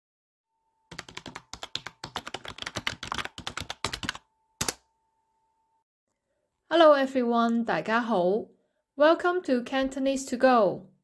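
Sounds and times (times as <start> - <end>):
faint steady high tone: 4.3 - 5.8.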